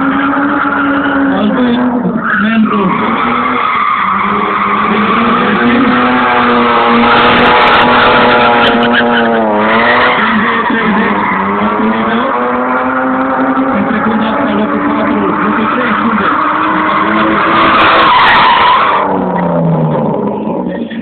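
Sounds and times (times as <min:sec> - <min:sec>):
tyres squealing: 0:00.0 - 0:19.4
car engine at high revs: 0:00.0 - 0:21.0.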